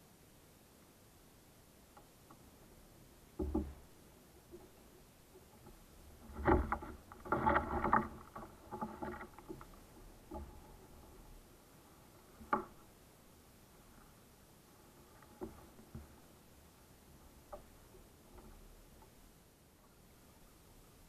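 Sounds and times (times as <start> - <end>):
gear knocking against plastic kayak: 3.4 - 3.9, 5.4 - 11.3, 12.3 - 12.8.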